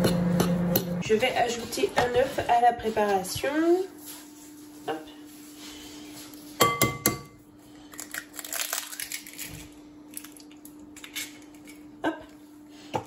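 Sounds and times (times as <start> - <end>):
eggshell crackling: 7.9 - 11.6.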